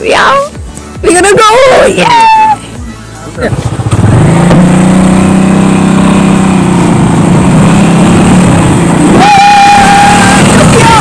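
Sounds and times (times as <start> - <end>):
motorcycle engine running: 3.4 - 11.0.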